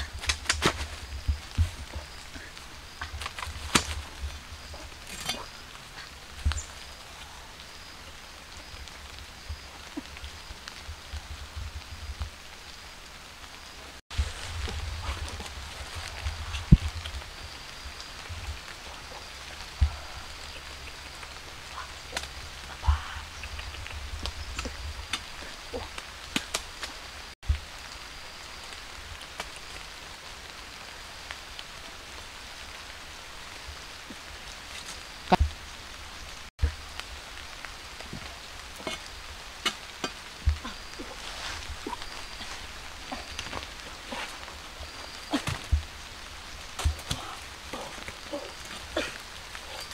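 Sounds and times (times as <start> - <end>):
steady outdoor hiss: 0.0 - 49.9
fruit snapping off branches: 3.2 - 4.0.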